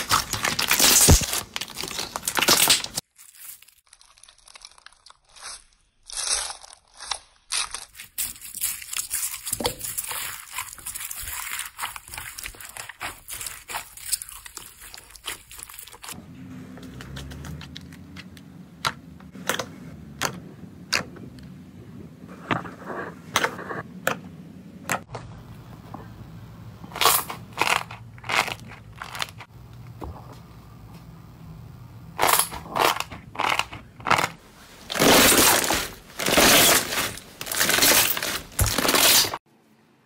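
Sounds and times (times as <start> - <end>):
slime crackling and crunching: 0.0 - 16.2, 26.9 - 29.5, 32.1 - 39.4
low steady hum: 13.3 - 39.0.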